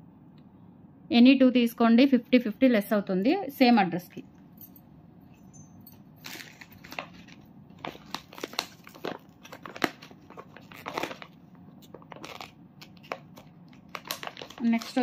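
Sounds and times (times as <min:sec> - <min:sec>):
crinkling and rustling: 0:05.8 - 0:15.0.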